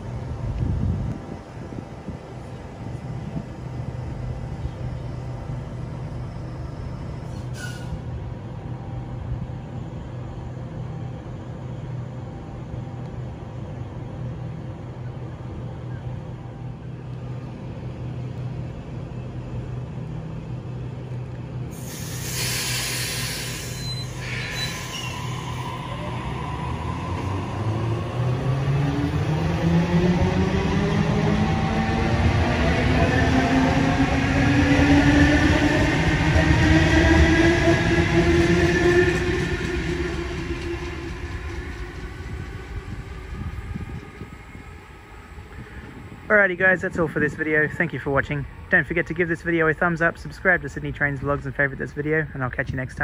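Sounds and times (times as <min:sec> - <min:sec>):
electric train humming: 0:00.0 - 0:52.0
air brakes hissing: 0:07.2 - 0:08.1, 0:21.7 - 0:25.6.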